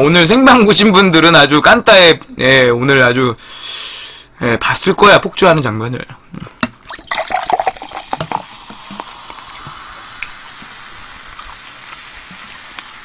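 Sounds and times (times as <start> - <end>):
cola pouring and fizzing: 6.7 - 13.0.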